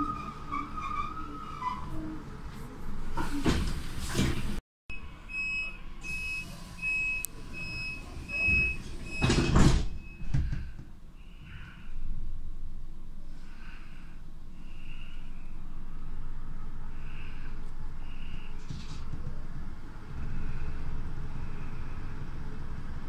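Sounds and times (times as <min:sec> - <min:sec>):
sliding doors closing: 0:00.0 - 0:04.6, 0:06.1 - 0:10.8.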